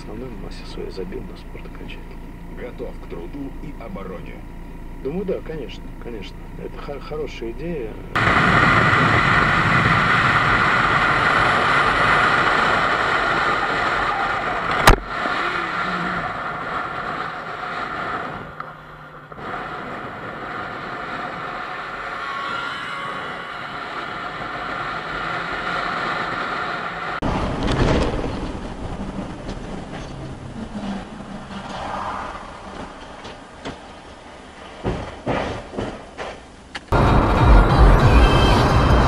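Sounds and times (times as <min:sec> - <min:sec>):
motorcycle engine running: 0:00.0 - 0:22.1
wind rushing over microphone: 0:08.2 - 0:33.6.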